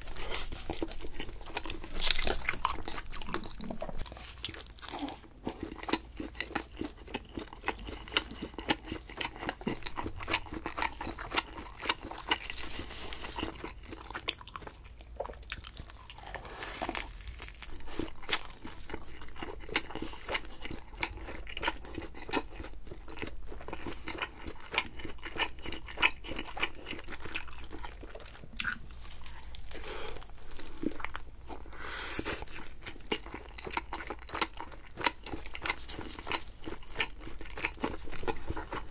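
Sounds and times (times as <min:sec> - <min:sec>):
person chewing crunchy pizza: 0:00.0 - 0:38.9.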